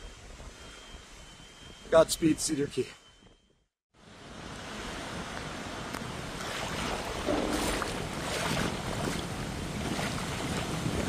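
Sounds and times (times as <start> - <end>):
wind on microphone: 5.0 - 11.0
water sloshing and splashing: 6.2 - 11.0.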